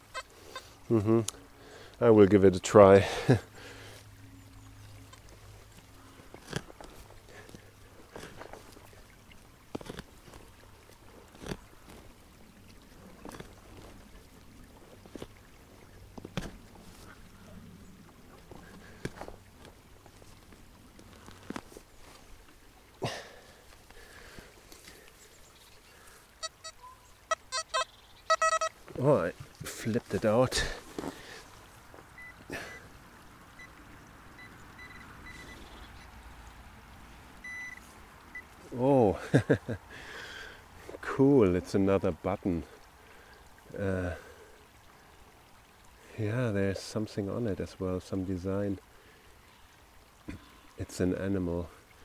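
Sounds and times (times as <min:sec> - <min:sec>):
digging knife scraping soil: 0:06.3 - 0:08.7, 0:09.7 - 0:10.5, 0:11.2 - 0:12.0
metal detector high beeps: 0:26.4 - 0:28.7, 0:34.8 - 0:35.6, 0:37.4 - 0:37.8.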